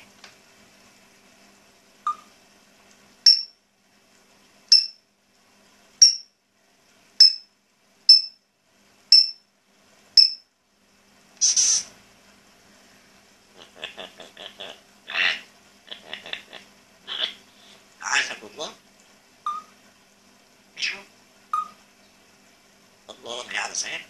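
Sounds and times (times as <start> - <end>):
parrot squawk: 13.6 - 18.5, 20.8 - 21.8
parrot whistling: 19.5 - 19.7, 21.6 - 21.8.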